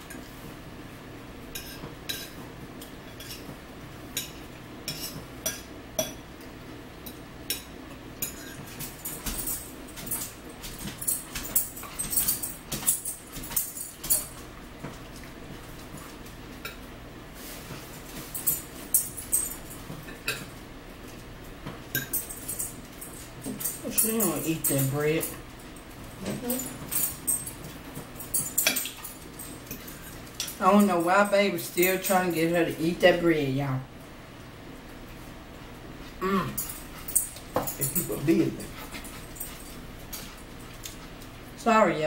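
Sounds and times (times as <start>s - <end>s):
forks clicking on plates: 21.9s - 25.4s, 26.3s - 31.2s, 36.6s - 41.0s.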